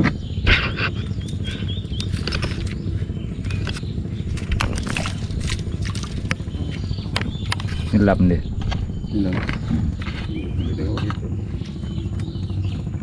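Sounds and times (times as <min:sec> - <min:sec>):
bird chirping: 0:00.0 - 0:13.0
low motor hum: 0:00.0 - 0:13.0
water splashing in fish trap: 0:04.6 - 0:06.2.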